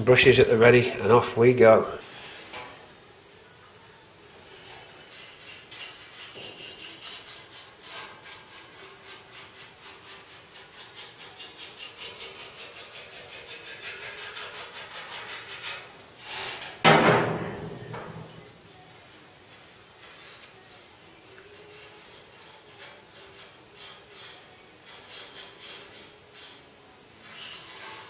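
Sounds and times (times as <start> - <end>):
paintbrush scrubbing on steel: 4.4 - 15.9, 20.0 - 28.0.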